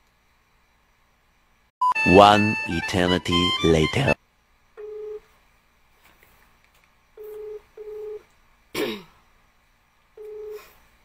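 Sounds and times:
telephone ringback tone: 4.8 - 5.2, 7.2 - 8.2, 10.2 - 10.6.

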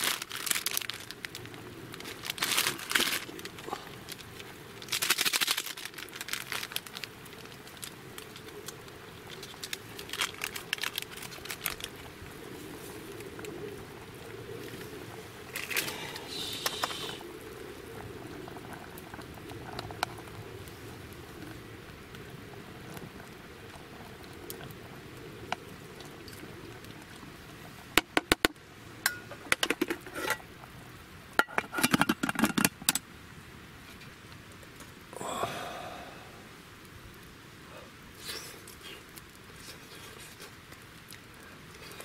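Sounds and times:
liquid simmering: 5.8 - 33.0.

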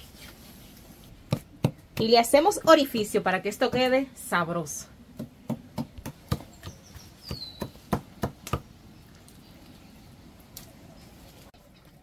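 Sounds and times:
bird chirp: 6.4 - 7.9.

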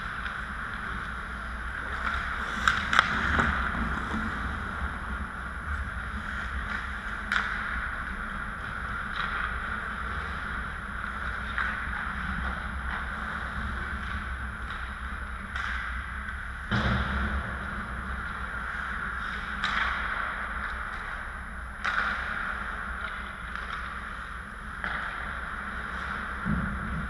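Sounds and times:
skate blades scraping ice: 0.0 - 16.4
hockey sticks and puck clacking: 0.0 - 27.0.

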